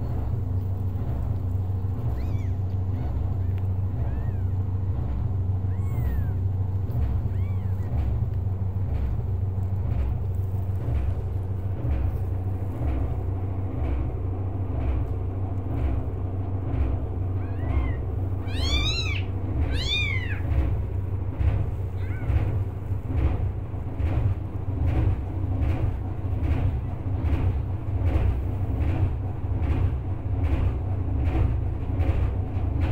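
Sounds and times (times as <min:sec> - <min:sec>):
steady low rumble: 0:00.0 - 0:32.9
kittens mewing: 0:01.9 - 0:08.3, 0:17.3 - 0:22.7.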